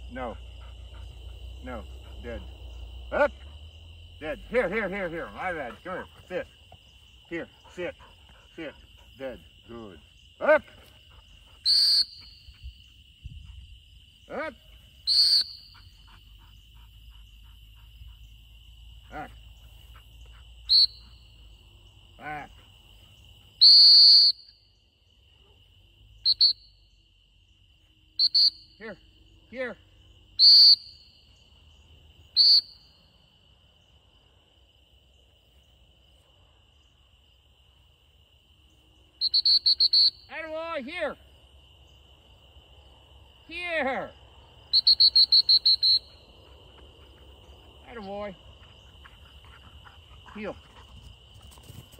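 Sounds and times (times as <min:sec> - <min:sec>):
high insect trill: 0:00.0 - 0:51.9
dog whistle blasts: 0:11.6 - 0:12.5, 0:15.0 - 0:15.8, 0:20.7 - 0:21.1, 0:23.6 - 0:24.6, 0:26.2 - 0:26.7, 0:28.2 - 0:28.8, 0:30.4 - 0:31.0, 0:32.4 - 0:32.9, 0:39.2 - 0:40.3, 0:44.7 - 0:46.2.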